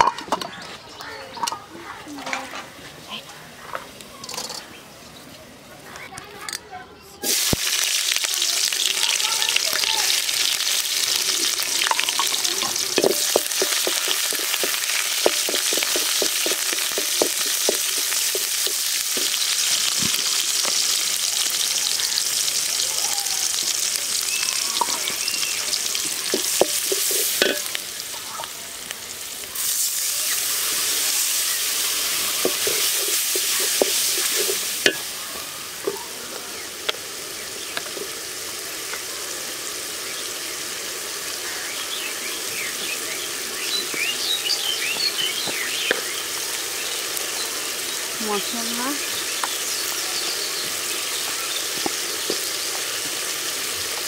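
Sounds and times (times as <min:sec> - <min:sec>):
onions sizzling in hot oil: 0:07.2 - 0:54.0.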